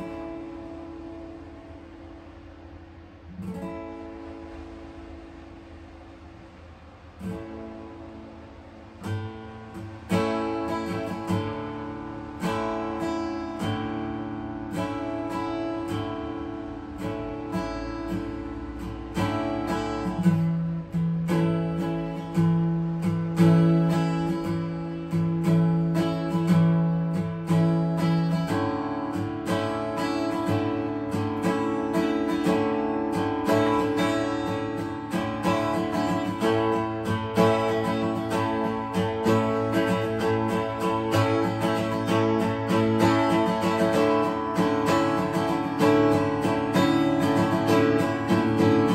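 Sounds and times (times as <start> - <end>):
acoustic guitar chords: 0.0 - 48.9.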